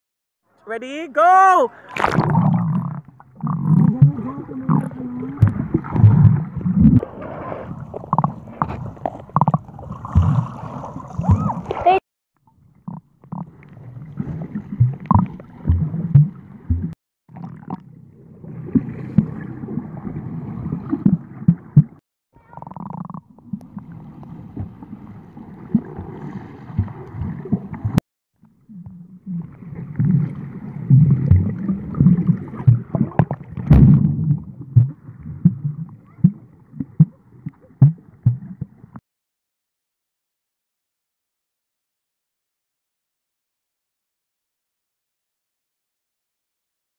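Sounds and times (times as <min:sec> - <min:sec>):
knocks and thumps of swimming strokes: 0:00.8 - 0:12.0, 0:13.4 - 0:17.8, 0:18.5 - 0:22.0, 0:23.4 - 0:28.0, 0:29.7 - 0:39.0
underwater bubbling rumble: 0:02.0 - 0:11.8, 0:12.6 - 0:39.0.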